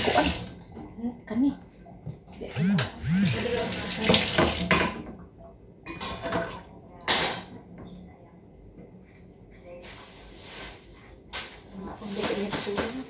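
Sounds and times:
tap running: 0:02.6 - 0:04.8
dishes and utensil clattering: 0:05.9 - 0:08.0.

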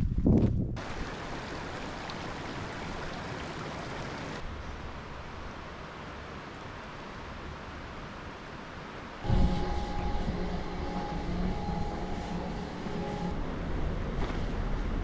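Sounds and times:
low wind rumble: 0:00.0 - 0:03.8, 0:04.4 - 0:15.0
stream running over stones: 0:00.8 - 0:04.5.

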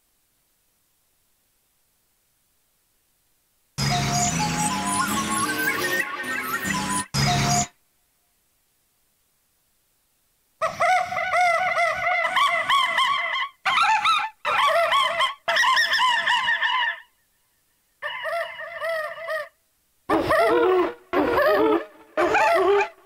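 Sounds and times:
owl hoots played as melody: 0:18.0 - 0:23.0.

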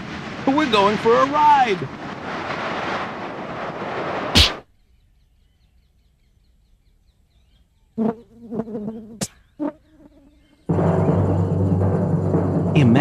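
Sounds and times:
rushing whoosh: 0:00.0 - 0:04.6
sharp swish: 0:04.2 - 0:04.6
drum hit with low ringing: 0:10.7 - 0:13.0.

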